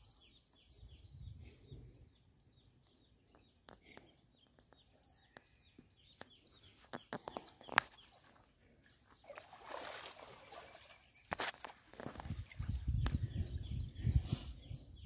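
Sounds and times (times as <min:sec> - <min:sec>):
small birds chirping: 0:00.0 - 0:15.0
water sloshing and splashing: 0:08.2 - 0:12.7.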